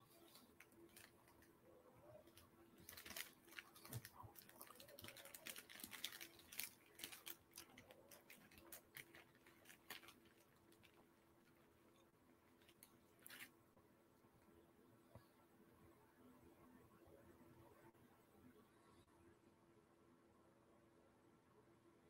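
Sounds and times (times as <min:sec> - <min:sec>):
faint clicking and crackling: 0:00.0 - 0:13.6.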